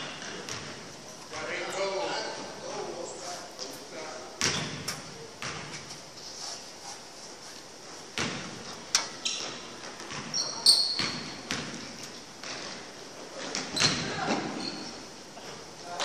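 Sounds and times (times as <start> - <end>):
basketball bouncing on hardwood: 0.2 - 0.9, 4.4 - 4.8, 8.2 - 8.6, 9.8 - 12.6
sneaker squeaks: 4.4 - 5.8, 8.2 - 15.1.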